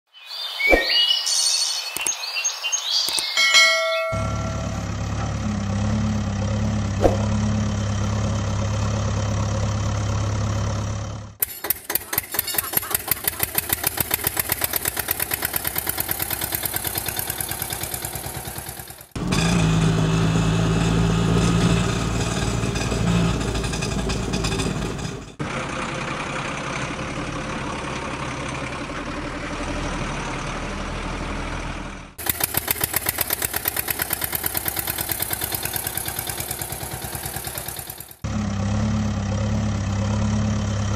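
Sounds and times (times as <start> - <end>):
engine humming: 2.9 - 40.9
dull engine running: 4.0 - 40.9
fast-pulsing engine idle: 11.4 - 19.2, 32.2 - 38.2.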